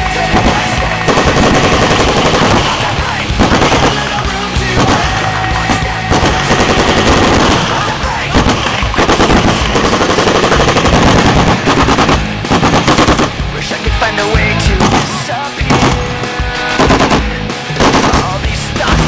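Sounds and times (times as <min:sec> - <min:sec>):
automatic gunfire: 0:00.2 - 0:13.4, 0:14.8 - 0:18.5.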